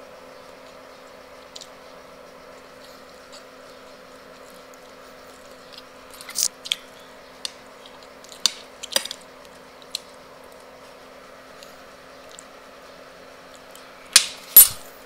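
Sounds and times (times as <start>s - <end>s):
steady hum: 0.0s - 15.0s.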